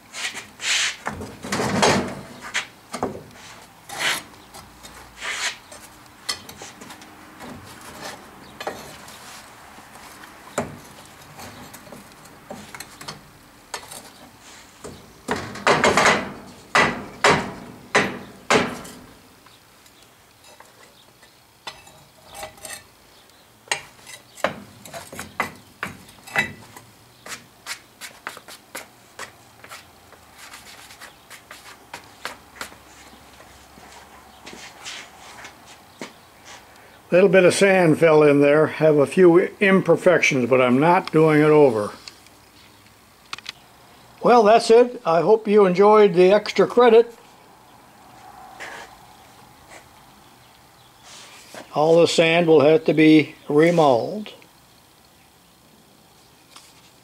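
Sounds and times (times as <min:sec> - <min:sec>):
tongs scraping and clinking metal: 0:10.8 - 0:14.6, 0:20.4 - 0:23.0, 0:23.7 - 0:25.4, 0:26.0 - 0:26.9.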